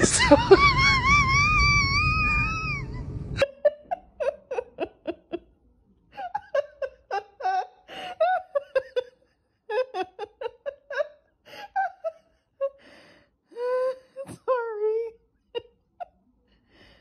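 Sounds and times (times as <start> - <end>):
person laughing softly: 0.0 - 5.5, 6.1 - 12.8
dog howling: 0.1 - 3.4.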